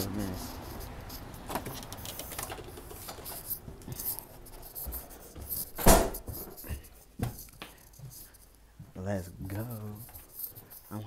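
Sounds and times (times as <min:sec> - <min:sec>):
scattered clicks: 0:01.5 - 0:03.6.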